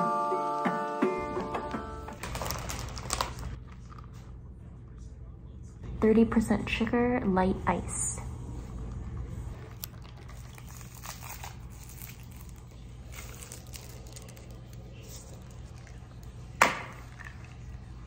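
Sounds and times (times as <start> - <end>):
straw popping through plastic film: 2.2 - 4.0, 9.6 - 17.4
plastic cup crinkling: 2.2 - 4.2, 9.6 - 18.0.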